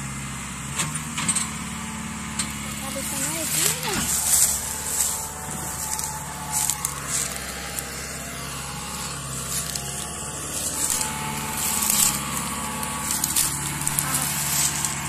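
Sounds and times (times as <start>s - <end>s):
tractor diesel engine under load: 0.0s - 15.0s
crackles: 2.4s - 15.0s.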